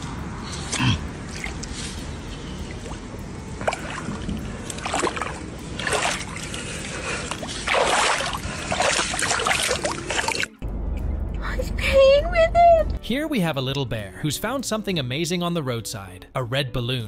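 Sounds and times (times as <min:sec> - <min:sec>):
shallow water splashing: 0:01.3 - 0:10.6.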